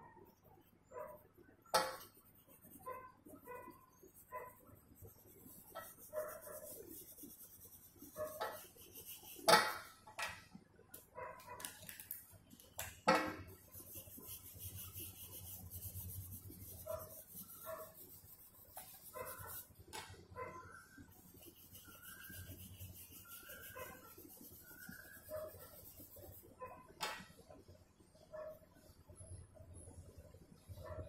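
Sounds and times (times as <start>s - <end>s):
oil pastel scratching on paper: 0.4s - 10.0s, 13.4s - 26.8s.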